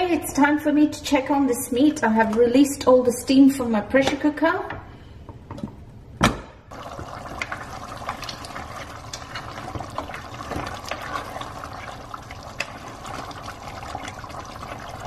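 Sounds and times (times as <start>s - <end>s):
thick gravy bubbling and sloshing: 6.7s - 15.0s.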